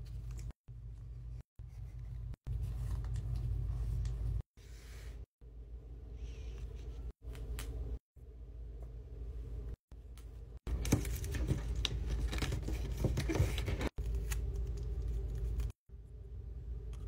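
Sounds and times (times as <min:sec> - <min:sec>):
paper folding and rustling: 0:10.7 - 0:15.7.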